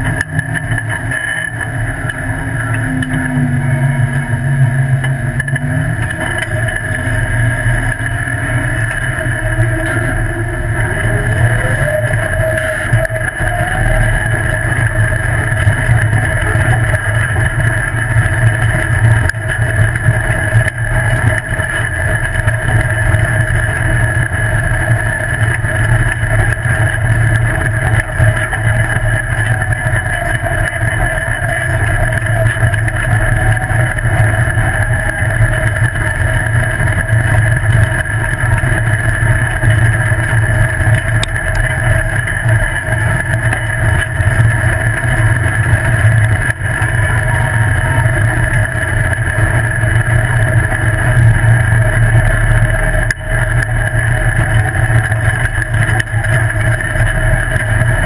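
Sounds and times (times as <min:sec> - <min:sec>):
buggy engine running: 0:00.0 - 0:58.0
tyres rumbling on dirt road: 0:00.0 - 0:58.0.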